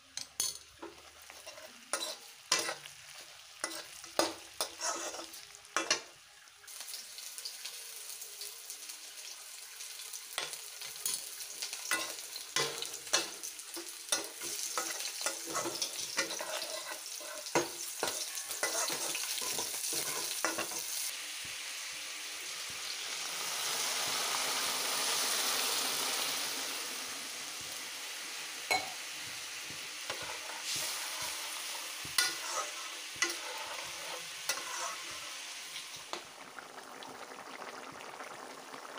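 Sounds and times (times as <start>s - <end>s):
meat and potatoes sizzling: 0.0s - 38.9s
wooden spatula scraping pan: 0.8s - 2.9s, 3.6s - 5.4s, 14.4s - 20.9s, 29.7s - 35.4s.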